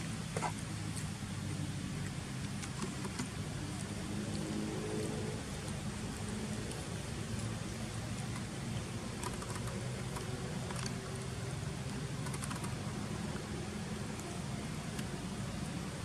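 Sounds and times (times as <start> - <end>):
faint clicks: 9.2 - 13.5.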